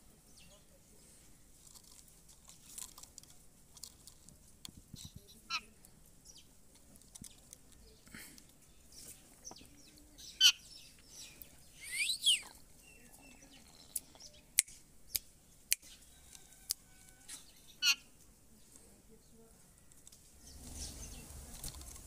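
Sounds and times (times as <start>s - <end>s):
parakeet chirping: 17.7s - 18.1s
parakeet squawking: 17.8s - 18.1s.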